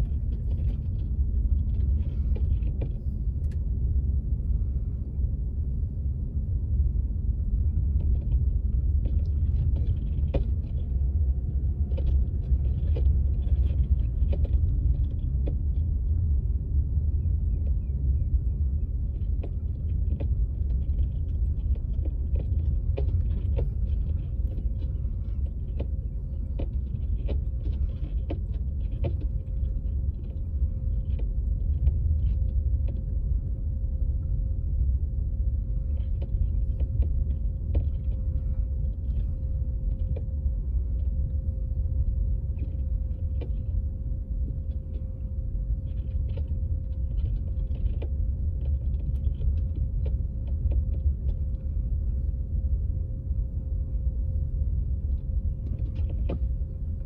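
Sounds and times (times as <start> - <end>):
car tyres and engine rumble: 0.0 - 57.0
small ticks and clicks: 7.9 - 16.2, 19.0 - 33.3, 35.9 - 51.9.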